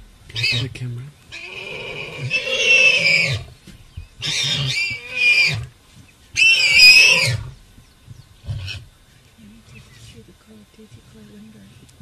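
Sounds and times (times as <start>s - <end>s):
warthog squealing: 0.3s - 0.7s, 1.3s - 3.5s, 4.2s - 5.7s, 6.4s - 7.5s.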